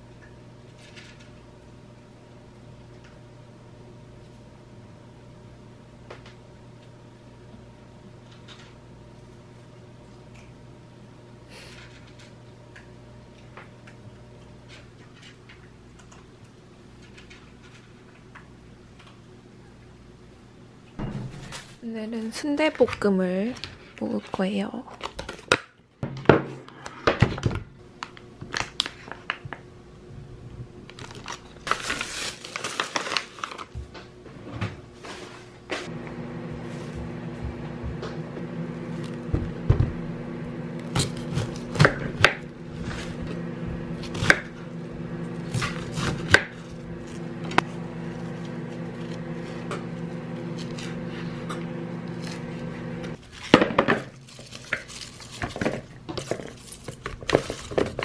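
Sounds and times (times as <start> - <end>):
plastic wrap crinkle: 28.0 - 29.5, 30.8 - 33.8, 53.2 - 58.0
steady hum: 35.6 - 53.2.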